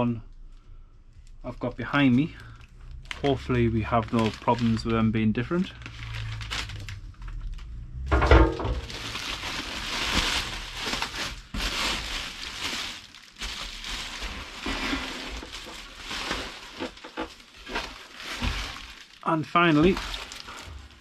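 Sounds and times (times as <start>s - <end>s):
packaging rustling and crinkling: 1.2s - 21.0s
loud thump: 8.1s - 9.1s.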